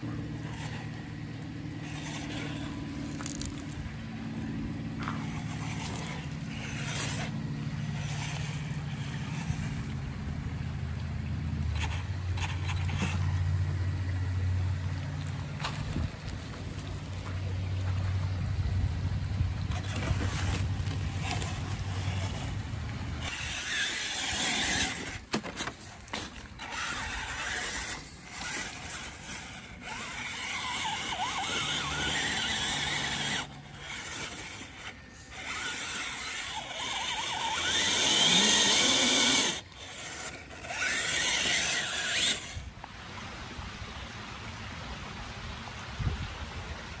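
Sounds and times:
electric motor and drivetrain whining: 0:00.0 - 0:43.3.

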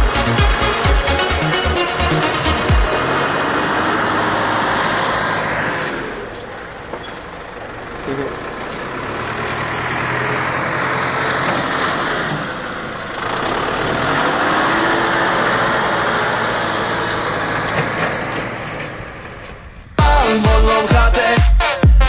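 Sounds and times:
dance music with heavy beat: 0:00.0 - 0:03.2, 0:20.0 - 0:22.0
tractor diesel engines droning: 0:00.0 - 0:21.8.

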